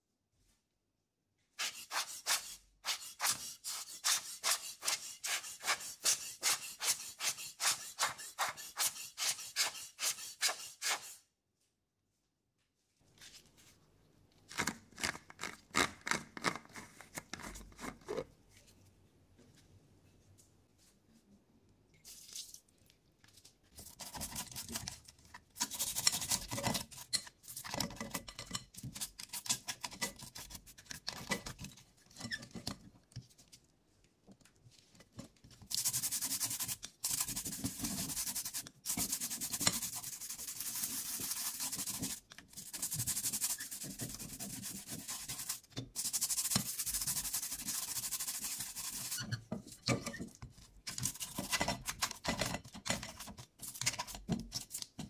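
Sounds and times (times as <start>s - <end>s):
toothbrush scrubbing circuit boards: 23.8s - 27.6s, 35.7s - 49.3s.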